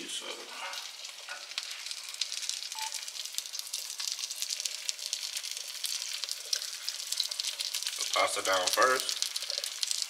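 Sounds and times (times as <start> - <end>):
food sizzling in a pan: 0.0 - 10.0
brief single tone: 2.8 - 3.0.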